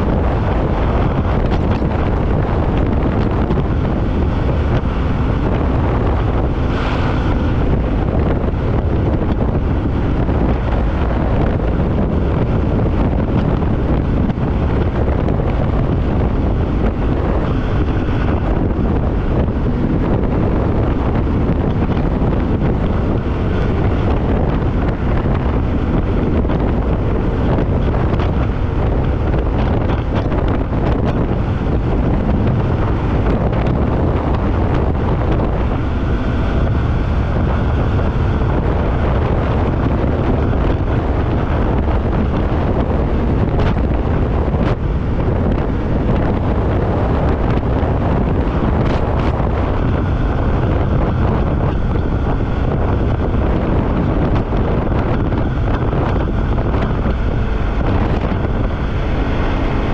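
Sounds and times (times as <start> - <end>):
snowmobile engine running: 0.0 - 59.9
wind rushing over microphone: 0.0 - 59.9.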